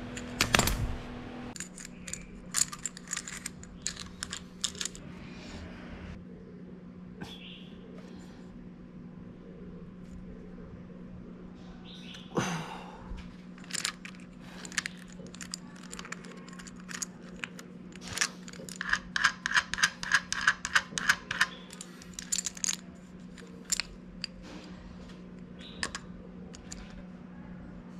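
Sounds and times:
steady low hum: 0.0s - 27.9s
metal chain clicking: 1.6s - 5.0s, 13.6s - 24.4s.

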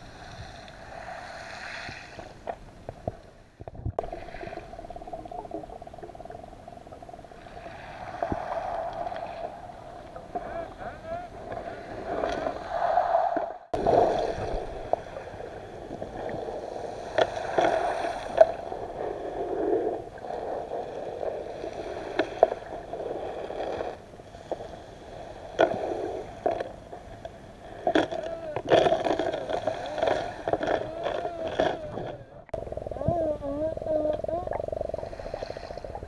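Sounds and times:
muffled underwater hum: 2.5s - 12.5s, 25.5s - 36.0s.

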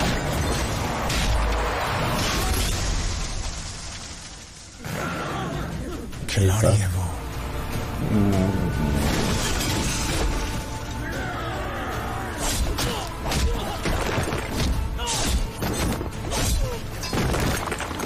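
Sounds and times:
sharp crashes and smashing impacts: 0.0s - 5.0s
dramatic music: 4.8s - 18.0s.

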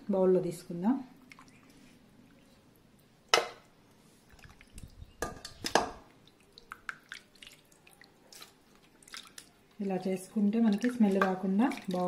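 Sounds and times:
water splashing and dripping: 1.2s - 1.8s, 4.3s - 12.0s.

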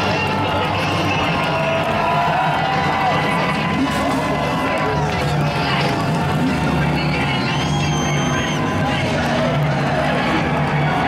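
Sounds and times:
music: 0.0s - 11.0s
stadium crowd cheering and shouting: 0.0s - 11.0s.

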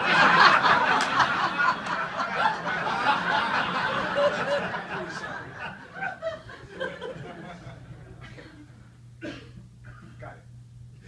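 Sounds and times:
audience laughing: 0.0s - 8.8s.

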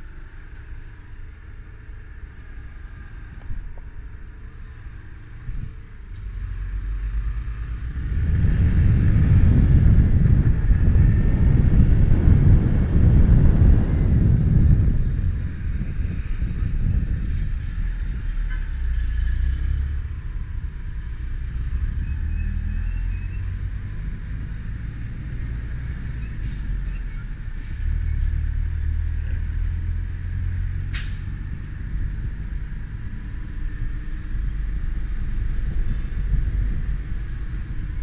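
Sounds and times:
wind on microphone: 7.4s - 26.9s, 35.1s - 38.0s
motorcycle engine rumble: 8.0s - 19.0s.

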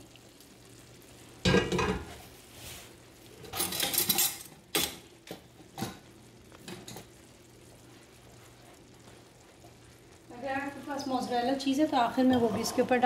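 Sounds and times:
metal cookware clattering: 1.4s - 2.1s, 3.4s - 5.1s.

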